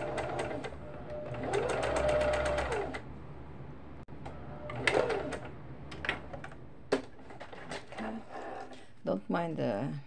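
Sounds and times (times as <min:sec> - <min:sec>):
sewing machine stitching: 0:00.0 - 0:03.0, 0:04.6 - 0:05.5.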